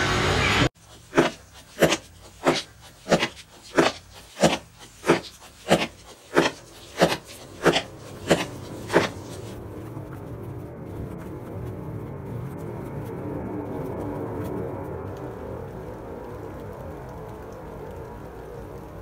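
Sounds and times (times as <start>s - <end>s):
short swishing strokes: 0.8s - 9.6s.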